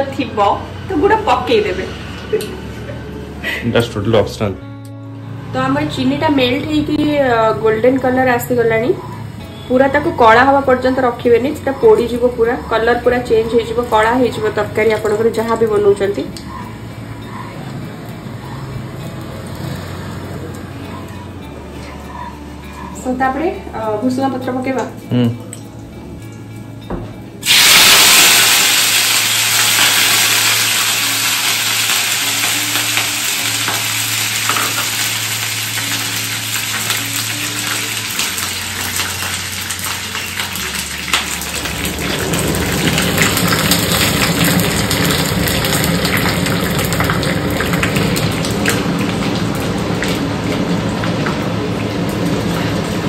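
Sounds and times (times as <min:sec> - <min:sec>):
chillies sizzling in hot ghee: 0:05.9 - 0:16.6, 0:27.4 - 0:53.0.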